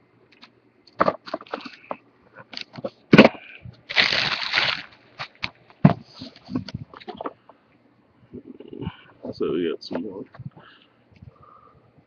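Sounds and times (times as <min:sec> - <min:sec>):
plastic wrapping crinkling: 0:03.9 - 0:05.5.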